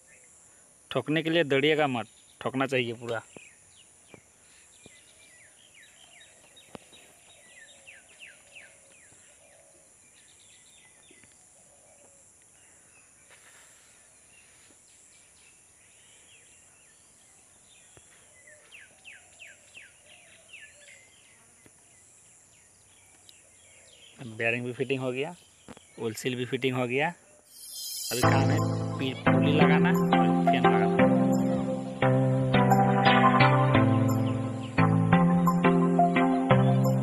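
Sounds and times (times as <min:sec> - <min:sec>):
falling bird chirps: 0:27.4 - 0:29.2
high insect drone: 0:27.4 - 0:29.2.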